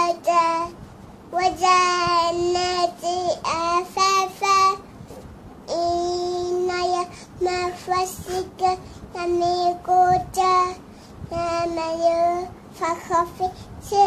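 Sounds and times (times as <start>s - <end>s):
child chanting: 0.0s - 4.9s, 5.7s - 14.0s.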